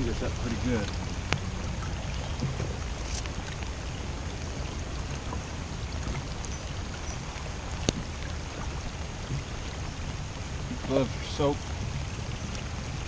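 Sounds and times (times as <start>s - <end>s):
low rumble: 0.0s - 13.0s
wind and water noise: 0.0s - 13.0s.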